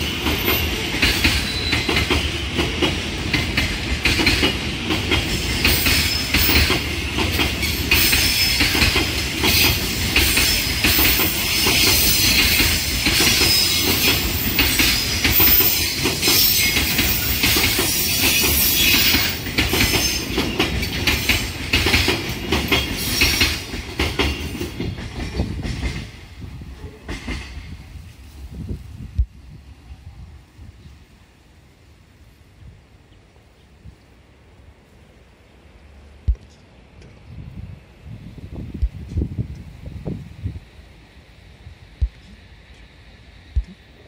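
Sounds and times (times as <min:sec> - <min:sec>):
train wheels clattering over rail joints: 0:00.0 - 0:27.8.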